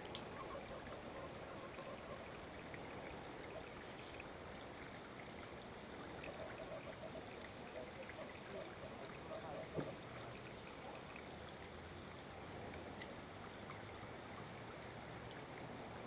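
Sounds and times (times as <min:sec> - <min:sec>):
water trickling: 0:00.0 - 0:16.0.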